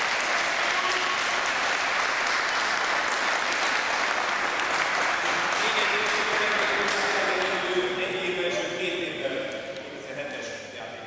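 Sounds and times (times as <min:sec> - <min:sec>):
crowd applauding: 0:00.0 - 0:07.9.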